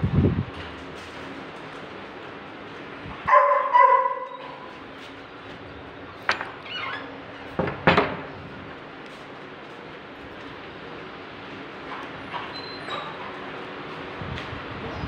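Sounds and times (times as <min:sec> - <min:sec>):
door knocks: 0:07.6 - 0:08.3
dog whining: 0:12.5 - 0:13.3.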